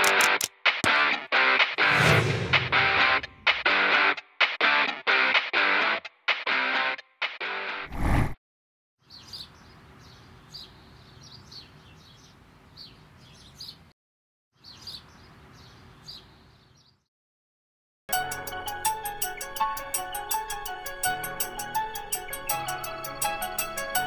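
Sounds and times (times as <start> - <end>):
small birds chirping: 9.0 - 13.9, 14.6 - 17.1.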